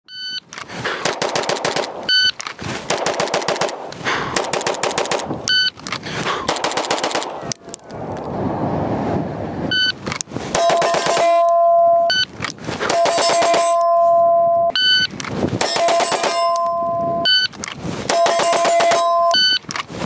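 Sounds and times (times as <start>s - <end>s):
rapid pistol shots: 0.8s - 2.1s, 2.8s - 5.3s, 6.3s - 7.4s, 10.5s - 11.4s, 12.8s - 13.8s, 15.6s - 16.6s, 18.1s - 19.2s.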